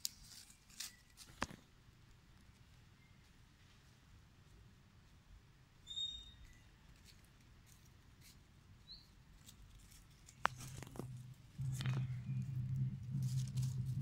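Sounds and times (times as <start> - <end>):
rustling in dry leaves: 0.0 - 1.7, 6.4 - 14.0
monkey squeak: 5.9 - 6.6.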